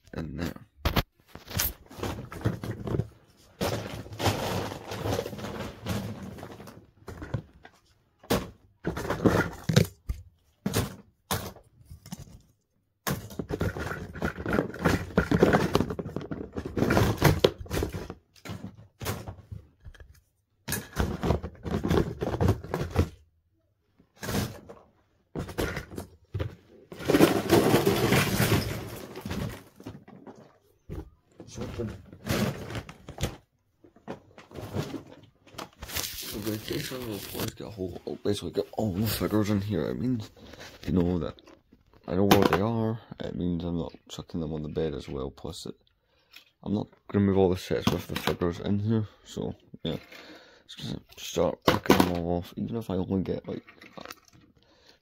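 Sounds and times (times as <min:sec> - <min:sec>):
plastic pieces clattering: 0:01.3 - 0:07.5, 0:08.2 - 0:20.1, 0:20.7 - 0:23.2, 0:25.4 - 0:30.7, 0:31.5 - 0:42.8, 0:53.2 - 0:54.6.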